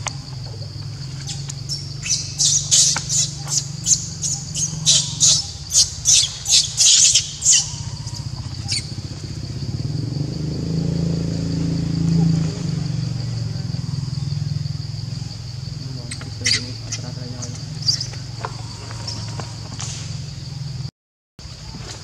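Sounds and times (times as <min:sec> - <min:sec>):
steady low hum: 0:00.0 - 0:20.9
monkey screeching: 0:01.0 - 0:09.0, 0:16.1 - 0:19.6.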